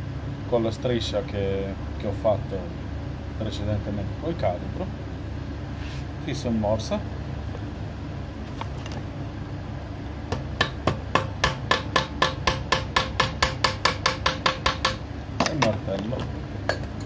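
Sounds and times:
hammer striking metal: 10.3s - 15.7s.

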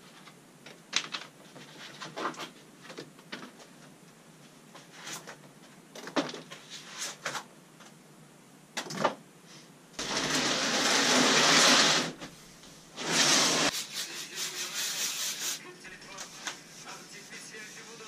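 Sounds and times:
scratchy rubbing: 10.0s - 12.2s, 13.0s - 18.0s
cardboard box scraping across floor: 10.0s - 12.3s, 13.0s - 13.8s.

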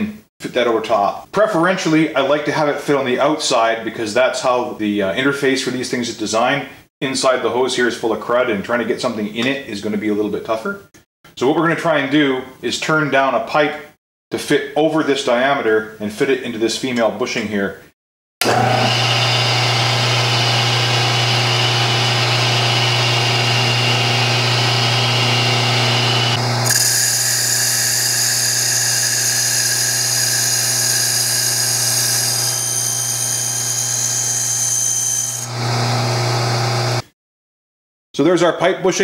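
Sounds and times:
lathe motor hum and whine: 18.4s - 37.0s
metal cutting noise: 18.4s - 37.0s.

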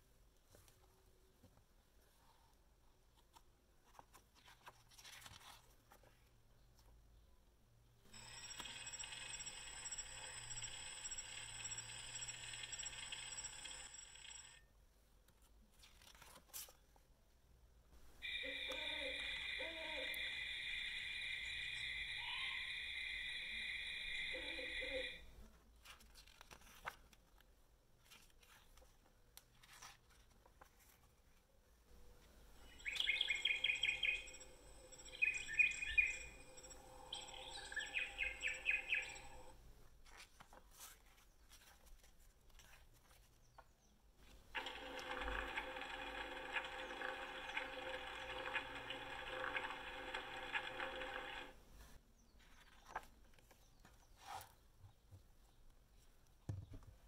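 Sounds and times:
pages rustling: 3.1s - 6.3s, 15.3s - 17.0s, 25.8s - 31.5s, 40.0s - 44.7s, 52.4s - 54.6s
frog chorus croaking: 18.2s - 25.2s
high rapid chirping from speaker: 18.2s - 25.2s, 32.6s - 39.5s.

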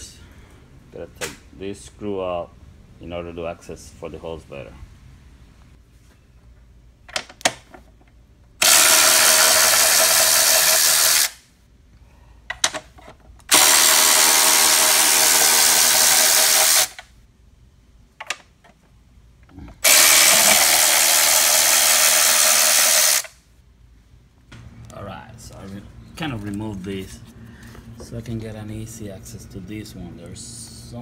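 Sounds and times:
cordless electric ratchet running: 8.6s - 11.4s, 13.5s - 17.0s, 19.8s - 23.4s.

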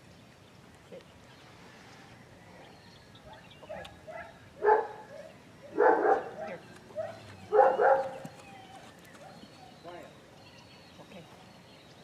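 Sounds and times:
puppy yipping and barking: 5.8s - 9.4s.

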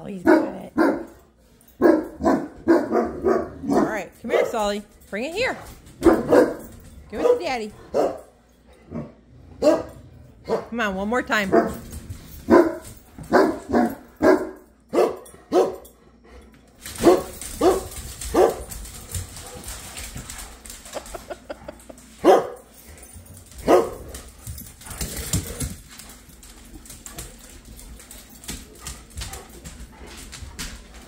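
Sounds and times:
dog barking: 0.2s - 1.2s, 1.8s - 4.5s, 6.0s - 8.3s, 9.6s - 10.7s, 12.5s - 15.8s, 17.0s - 18.7s, 22.2s - 22.6s, 23.6s - 24.1s.

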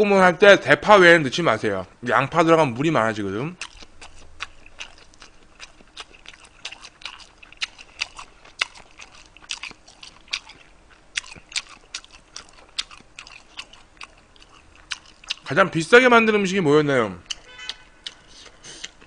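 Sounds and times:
person chewing food: 3.5s - 15.5s, 17.2s - 19.0s.

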